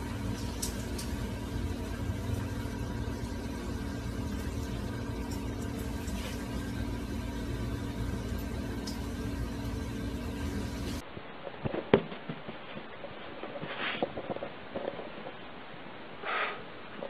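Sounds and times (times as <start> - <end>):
machine humming: 0.0 - 11.0.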